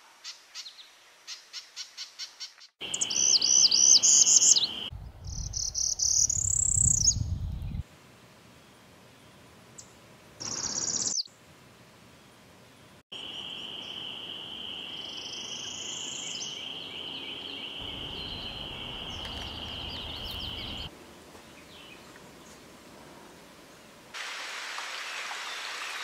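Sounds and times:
bird song phrase: 0:02.8 - 0:07.8, 0:14.9 - 0:20.9
other birds calling: 0:17.4 - 0:20.9.

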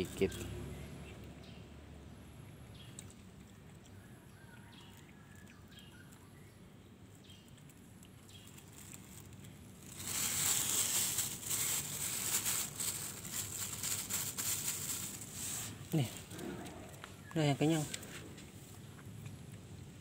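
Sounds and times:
plastic bag crinkling: 0:07.5 - 0:17.0.

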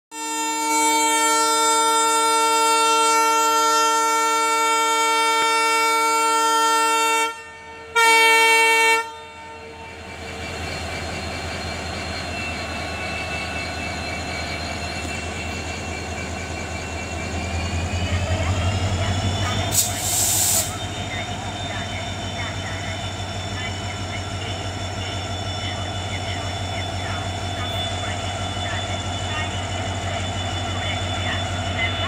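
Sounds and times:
locomotive horn multi-tone chord: 0:00.1 - 0:09.8
locomotive running hum: 0:00.2 - 0:32.0.

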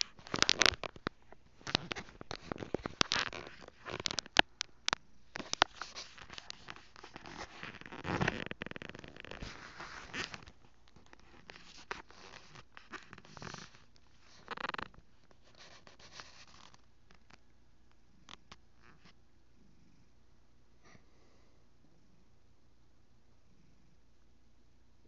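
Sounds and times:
phone handling rustling: 0:00.0 - 0:04.6.

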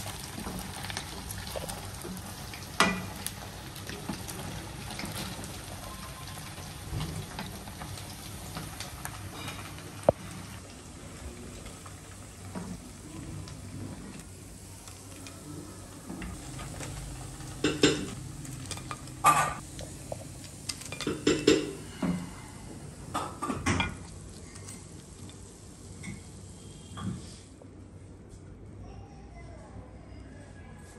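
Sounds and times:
food sizzling in hot oil: 0:00.0 - 0:22.0.

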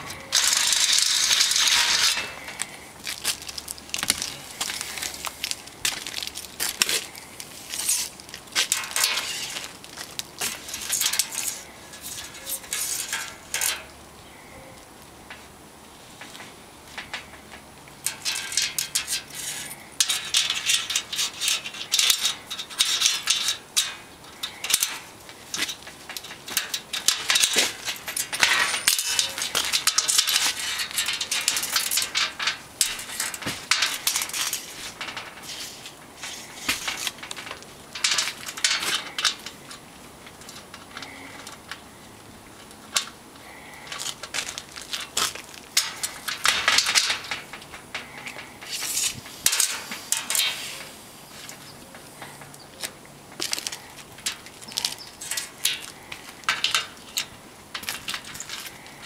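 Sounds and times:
tape measure rattling on metal: 0:00.1 - 0:13.9, 0:18.0 - 0:41.6, 0:44.0 - 0:51.6.

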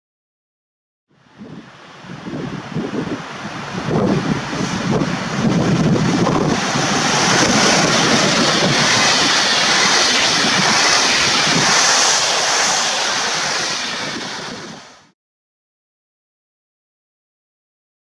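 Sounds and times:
train passing at speed: 0:01.4 - 0:15.2.

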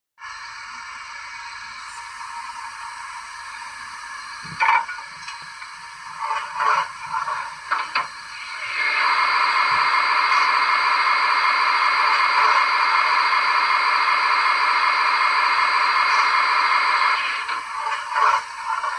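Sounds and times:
loud steady steam hiss: 0:00.2 - 0:18.9
sharp steam bursts: 0:08.2 - 0:18.9.

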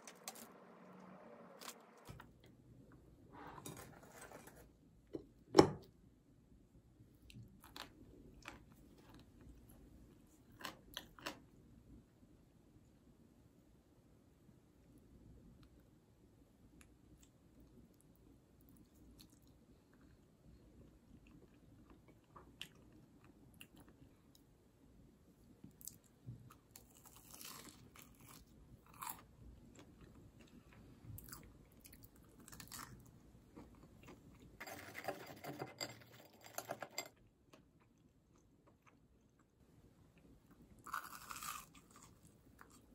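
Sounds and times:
crunching and chewing food: 0:07.1 - 0:11.6, 0:16.8 - 0:24.5, 0:25.4 - 0:34.9, 0:37.5 - 0:42.9.

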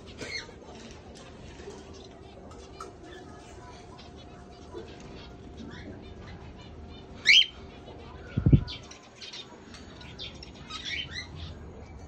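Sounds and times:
cockatiels calling: 0:07.0 - 0:07.7.

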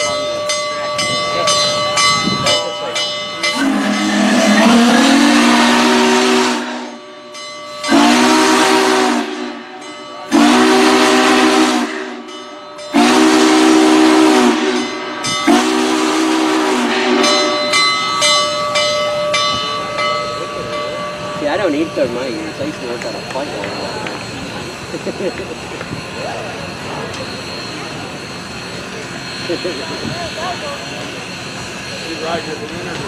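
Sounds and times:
steam hissing: 0:03.2 - 0:33.0
steam whistle blasts: 0:03.5 - 0:07.0, 0:07.8 - 0:12.3, 0:12.9 - 0:17.8.

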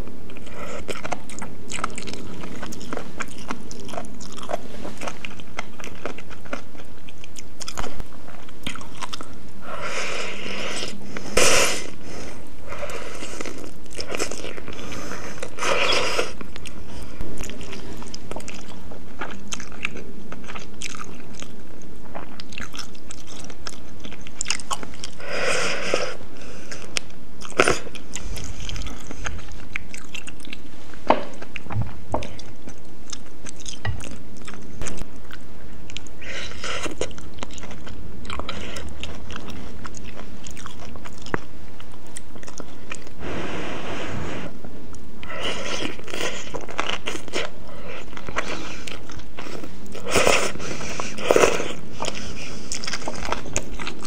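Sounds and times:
wet chewing: 0:00.3 - 0:09.8, 0:12.7 - 0:25.3, 0:26.6 - 0:43.2, 0:44.9 - 0:54.0
slurping noodles: 0:43.2 - 0:44.6.

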